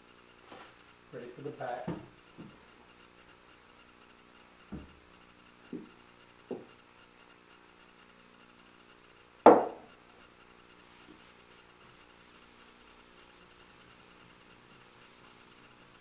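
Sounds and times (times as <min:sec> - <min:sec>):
wooden box knocking on workbench: 0:09.5 - 0:09.9.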